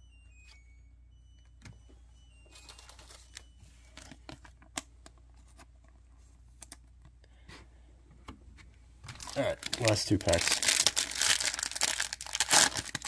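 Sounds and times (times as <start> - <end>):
cards rustling and ticking: 2.5 - 7.2, 9.0 - 13.0.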